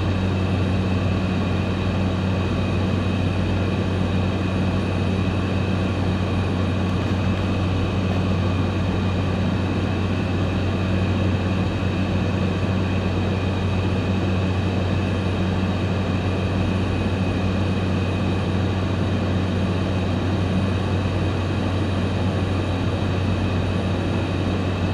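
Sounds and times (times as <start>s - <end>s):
propeller aircraft engine droning: 0.0s - 24.9s.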